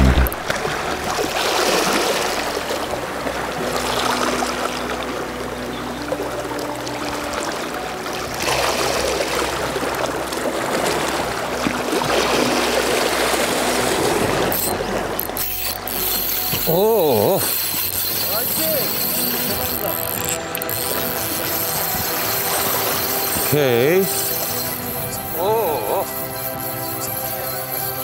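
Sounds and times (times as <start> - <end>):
water washing against rocks: 6.6 - 28.0.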